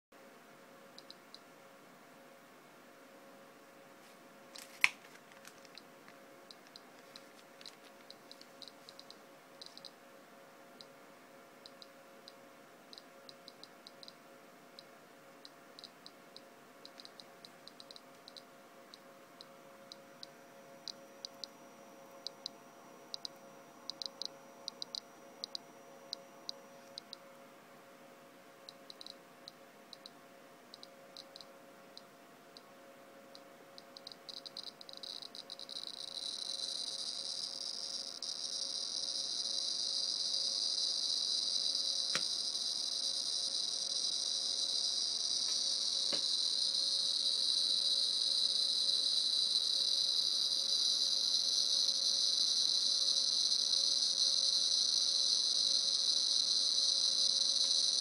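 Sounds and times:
geiger counter clicking: 0:06.5 - 0:10.0, 0:11.6 - 0:12.4, 0:13.0 - 0:14.2, 0:14.8 - 0:27.2, 0:28.7 - 0:30.2, 0:30.8 - 0:31.5, 0:33.4 - 0:58.0.

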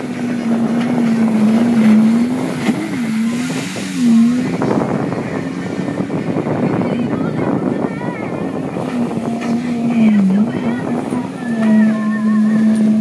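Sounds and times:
water spray rushing: 0:00.0 - 0:06.7
watercraft engine running hard: 0:00.0 - 0:13.0
wind: 0:00.0 - 0:13.0.

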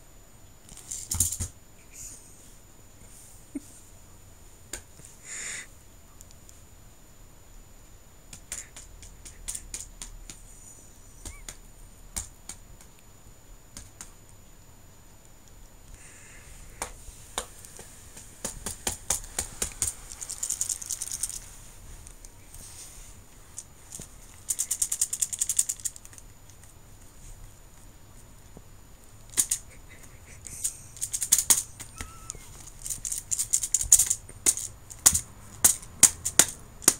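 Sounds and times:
abacus beads rattling in a case: 0:00.7 - 0:01.5, 0:18.9 - 0:22.4, 0:23.5 - 0:26.7, 0:29.3 - 0:29.7, 0:30.5 - 0:36.9.

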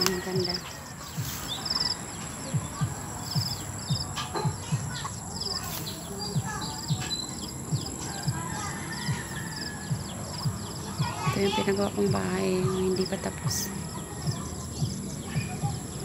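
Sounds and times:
birds chirping and trilling: 0:00.0 - 0:16.0.

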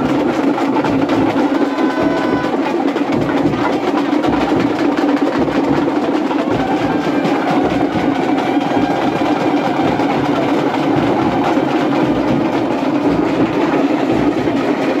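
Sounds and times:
fast loud drumming: 0:00.0 - 0:15.0.

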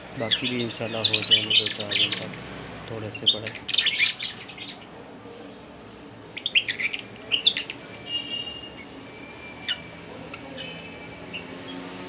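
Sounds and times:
lovebirds squawking: 0:00.2 - 0:02.4, 0:03.1 - 0:05.0, 0:06.4 - 0:09.0.

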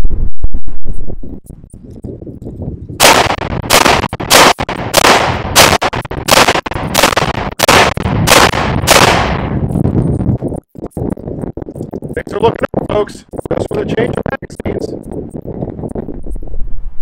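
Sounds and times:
pistol shots: 0:03.0 - 0:09.6.

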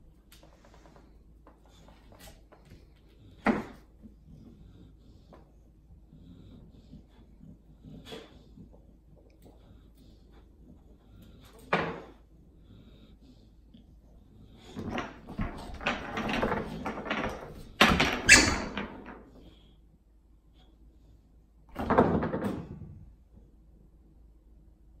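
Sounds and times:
toys clattering on wooden floor: 0:14.6 - 0:19.4, 0:21.7 - 0:22.9.

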